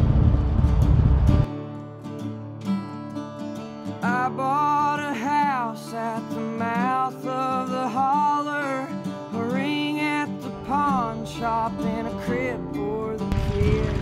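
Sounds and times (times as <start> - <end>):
guitar music: 0.0 - 14.0
person singing: 4.0 - 14.0.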